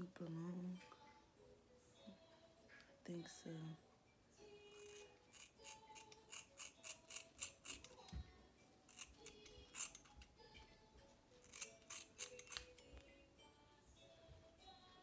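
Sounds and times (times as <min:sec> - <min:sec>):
soft background music: 0:00.0 - 0:15.0
scissors snipping hair: 0:04.7 - 0:08.2, 0:08.9 - 0:10.3, 0:11.4 - 0:13.1.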